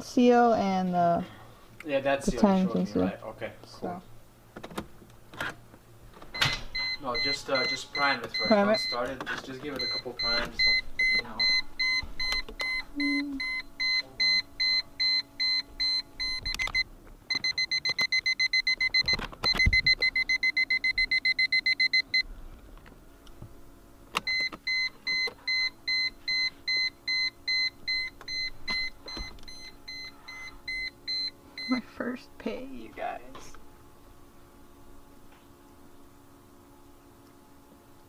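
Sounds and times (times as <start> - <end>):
high-pitched warning chime beeping: 6.8 - 9.0, 9.8 - 22.2.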